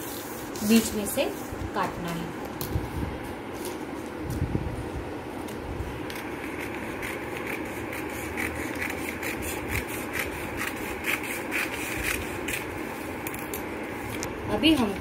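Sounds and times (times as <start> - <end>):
scissors snipping newspaper: 0.5 - 1.1, 6.0 - 13.6.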